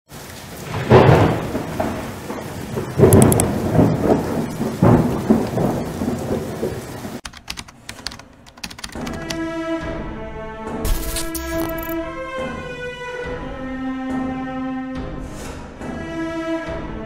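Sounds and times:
steady rain: 0.1s - 9.4s
thunder rolling: 0.6s - 7.2s
sharp clicks: 3.2s - 3.5s, 7.2s - 9.4s, 10.9s - 12.0s.

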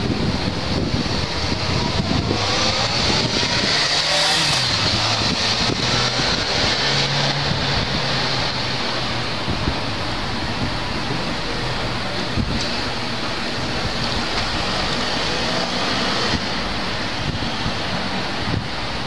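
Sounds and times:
wind buffeting microphone: 0.0s - 19.0s
motorcycle engine revving: 0.8s - 8.7s.

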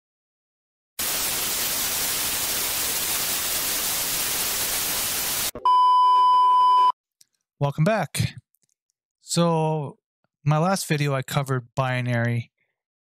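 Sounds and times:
static hiss: 1.0s - 5.5s
high test-tone beep: 5.5s - 7.0s.

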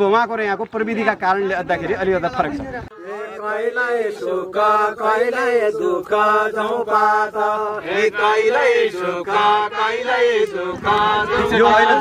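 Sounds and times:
men chanting held notes: 2.9s - 12.0s.

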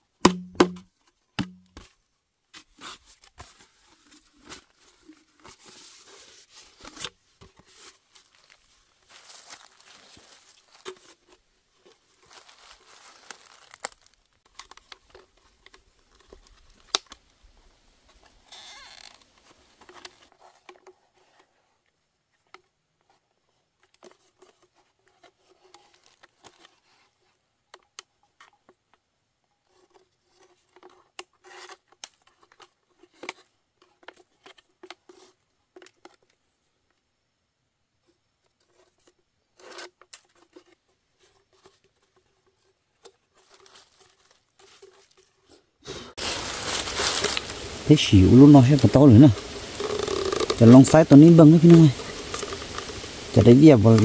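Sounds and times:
plastic bottle crinkling: 3.5s - 17.2s, 46.2s - 54.0s.

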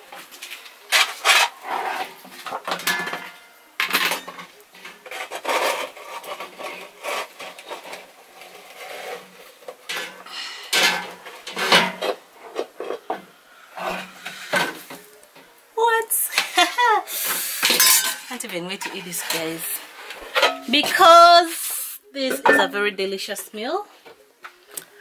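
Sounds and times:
plastic bowl scraping saucepan: 1.0s - 2.7s, 4.9s - 10.2s.

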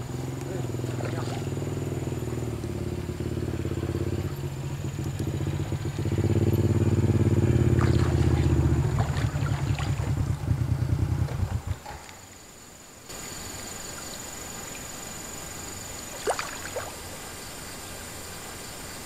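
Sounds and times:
small engine running: 0.0s - 12.1s.

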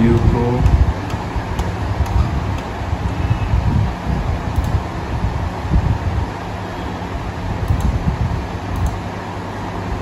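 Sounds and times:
faint hum: 0.0s - 10.0s.

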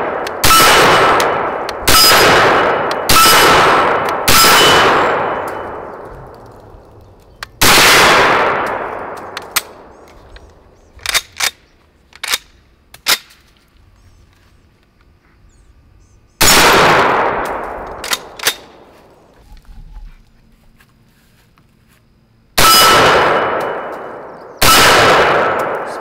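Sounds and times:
rifle shots: 0.0s - 6.0s, 7.6s - 10.0s, 16.4s - 18.9s, 22.6s - 26.0s
bullets clanging on steel targets: 0.4s - 5.8s.

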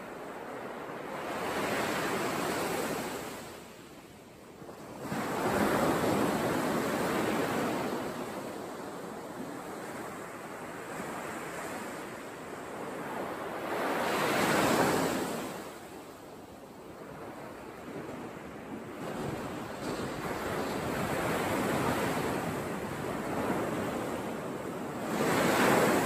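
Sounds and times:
surf breaking on beach: 19.0s - 26.0s.

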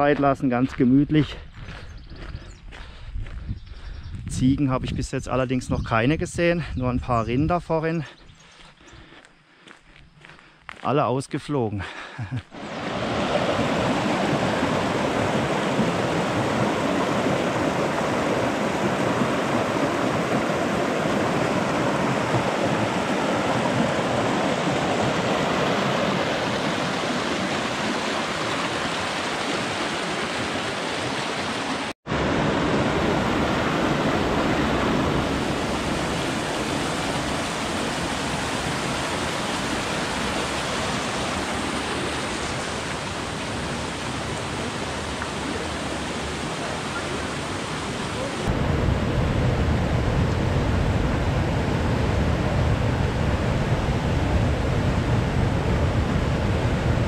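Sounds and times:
flowing water rushing: 12.5s - 57.0s.

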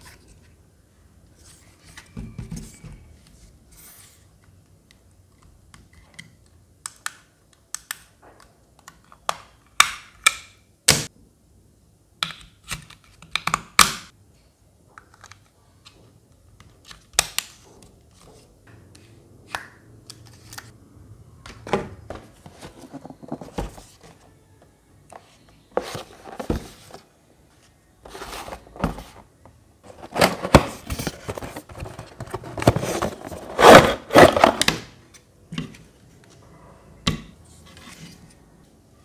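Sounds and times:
cardboard box scraping and rustling: 29.9s - 34.6s.

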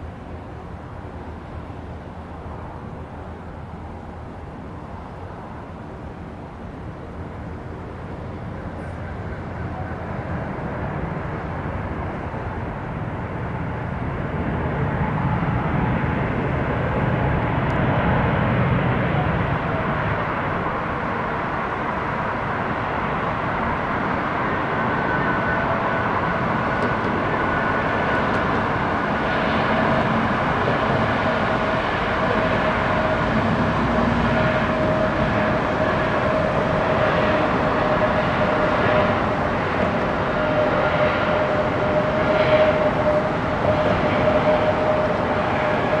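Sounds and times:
jet engine noise: 0.0s - 46.0s
whining tone: 24.6s - 46.0s.

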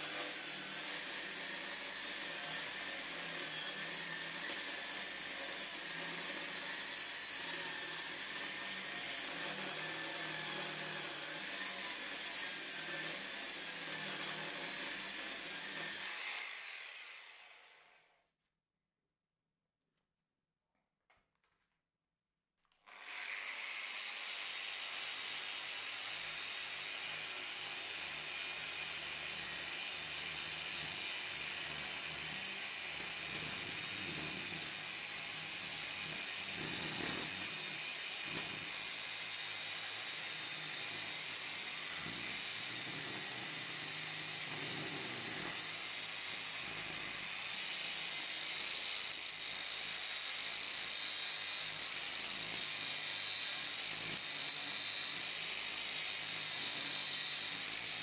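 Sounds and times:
angle grinder carving wood: 0.0s - 17.8s, 22.8s - 58.0s.

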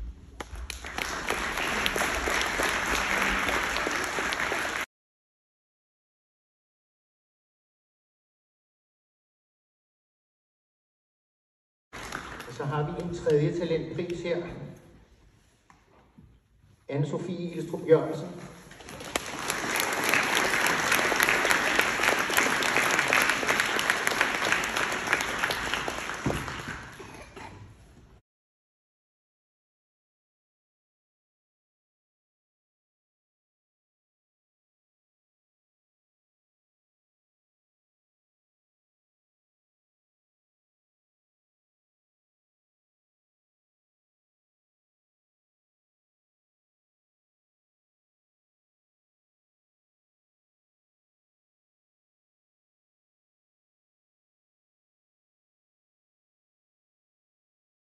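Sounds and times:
audience applauding: 0.4s - 4.9s, 12.0s - 13.4s, 18.7s - 27.5s.

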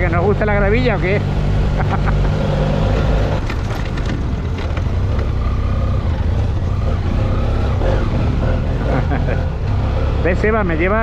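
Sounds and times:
motorcycle engine running: 0.0s - 11.0s
tyres on loose gravel: 3.3s - 5.4s.

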